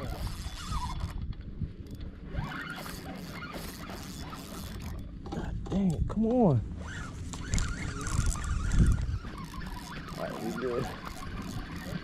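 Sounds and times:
fishing reel ratcheting clicks: 2.6 - 5.0, 7.4 - 12.0.

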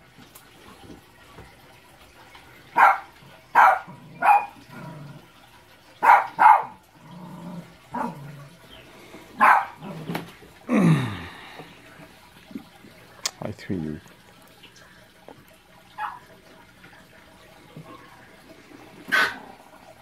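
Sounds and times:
dog barking: 2.8 - 4.6, 6.0 - 6.8, 7.9 - 8.2, 9.4 - 9.8, 16.0 - 16.3.

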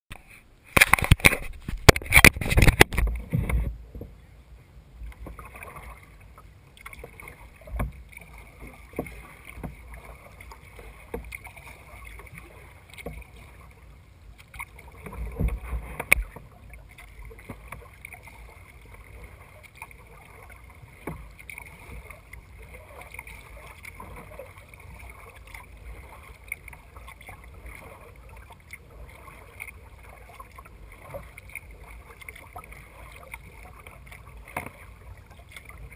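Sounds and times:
paddle splashing water: 0.1 - 35.9
knocks against kayak hull: 15.0 - 16.4.

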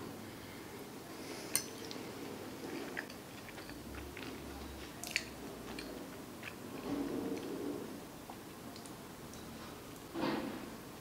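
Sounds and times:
person chewing: 2.6 - 7.5
wet mouth clicks: 5.0 - 6.6.

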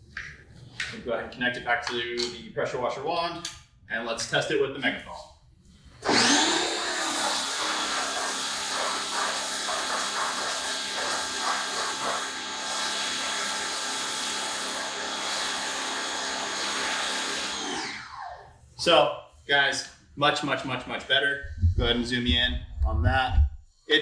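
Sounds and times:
pressure washer humming: 6.0 - 18.1.

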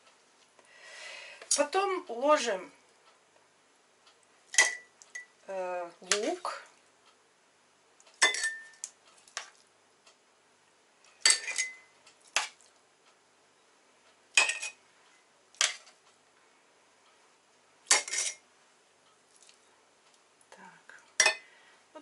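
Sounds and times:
metal tongs clinking against pot: 8.2 - 8.9, 11.2 - 11.9, 17.9 - 18.4.

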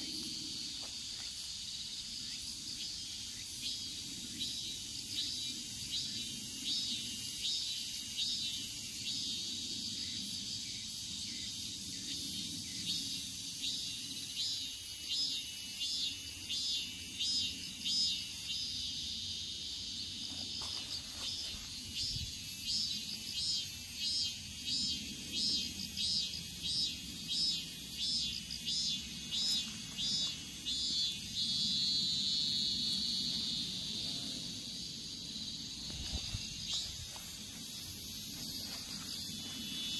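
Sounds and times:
insects chirping: 0.0 - 39.9.

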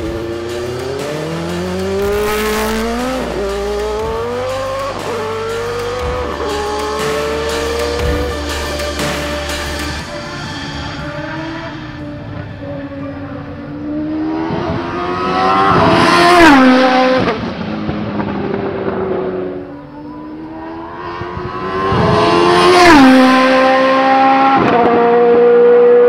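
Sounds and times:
race car passing at speed: 10.2 - 26.0.

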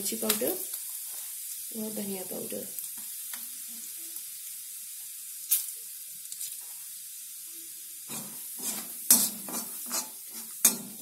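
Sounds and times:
spices sizzling in hot oil: 0.0 - 11.0
metal spoon scraping pan: 8.1 - 11.0.

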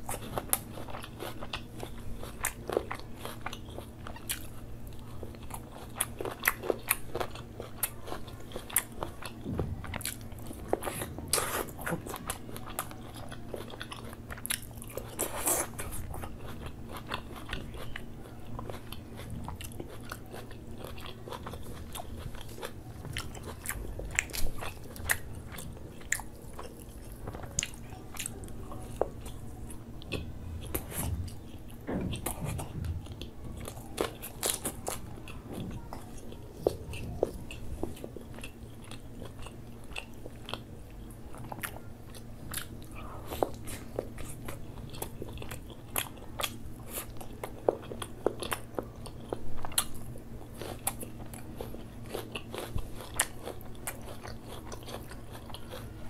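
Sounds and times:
man chewing and lip smacking: 0.0 - 56.0.

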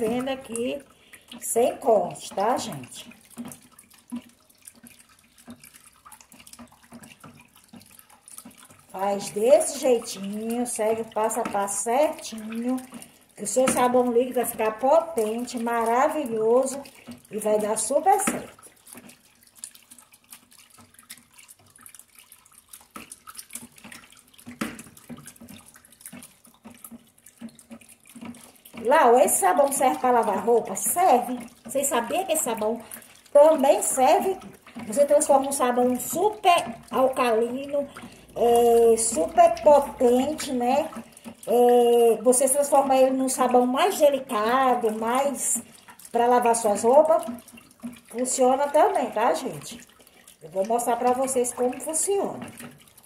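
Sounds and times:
thick liquid being stirred: 0.0 - 53.0
stick knocking and scraping tub: 13.4 - 16.8, 17.4 - 18.6, 33.4 - 41.1.

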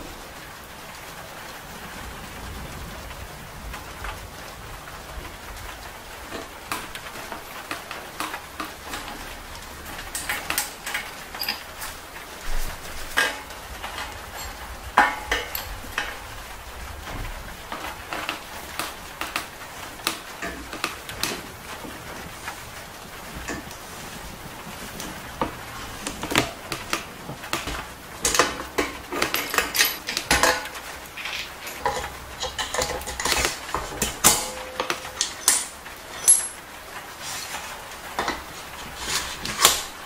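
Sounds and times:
metal parts clicking and clinking: 6.3 - 16.5, 17.2 - 21.4, 25.0 - 40.0.

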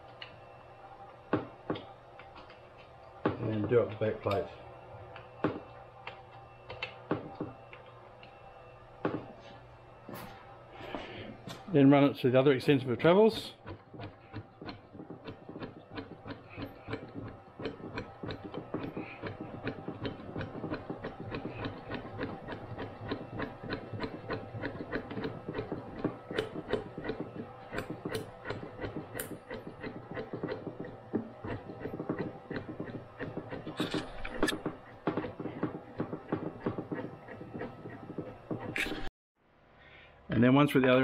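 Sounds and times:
ball screw ticking: 13.3 - 38.9.

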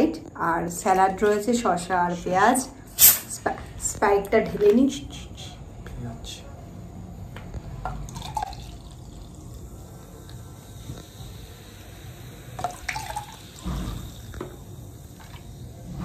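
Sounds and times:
soft drink pouring into container: 8.1 - 11.2, 12.6 - 15.5.

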